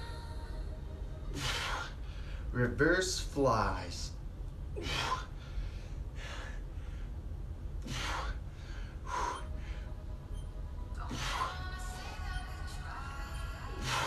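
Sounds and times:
man breathing hard: 1.3 - 2.6, 4.8 - 10.1, 11.0 - 11.7, 13.7 - 14.0.

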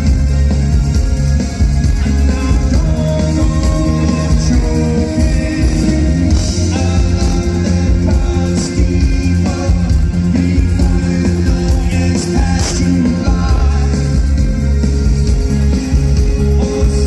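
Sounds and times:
live rock band playing: 0.0 - 17.0
man singing lead vocal: 2.0 - 14.6, 16.2 - 17.0.

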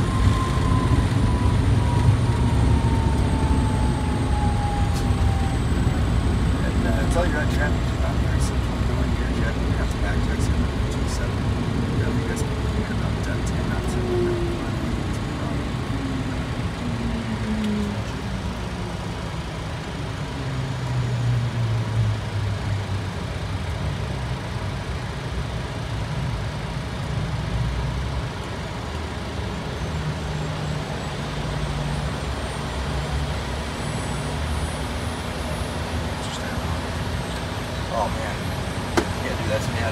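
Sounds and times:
aircraft wheels rolling on runway: 0.0 - 20.1, 31.9 - 39.9
jet engines spooling down: 0.0 - 21.8, 31.2 - 39.9.

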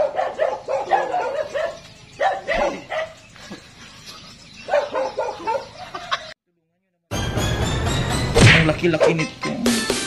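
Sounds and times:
dog yapping: 0.0 - 3.2, 4.7 - 5.8.

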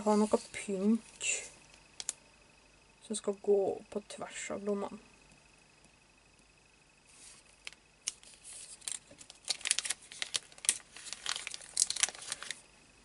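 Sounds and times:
plastic sheet and paper crinkling: 7.2 - 12.6.

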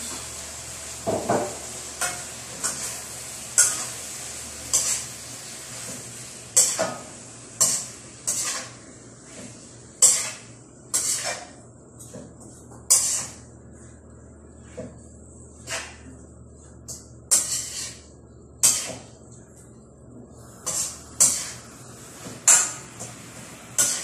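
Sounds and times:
food sizzling: 0.0 - 11.5, 20.4 - 24.0
metal spatula scraping a wok: 2.0 - 6.9, 7.6 - 8.8, 10.0 - 11.6, 12.9 - 13.5, 15.6 - 16.1, 17.3 - 19.1, 20.5 - 22.8, 23.8 - 24.0.

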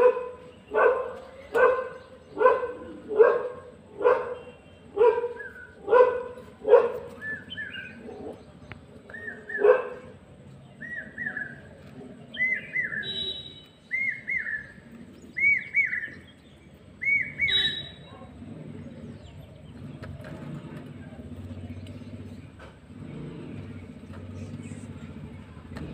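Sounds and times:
dog barking: 0.0 - 7.1, 9.5 - 10.1
bird chirping: 4.4 - 25.9.

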